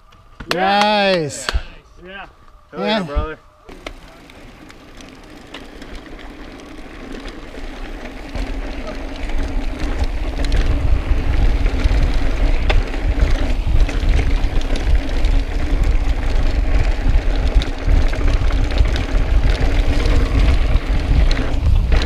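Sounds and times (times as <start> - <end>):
bike tyres on rock: 2.1 - 22.0
bike clicks and rattles: 3.7 - 22.0
wind buffeting microphone: 7.6 - 22.0.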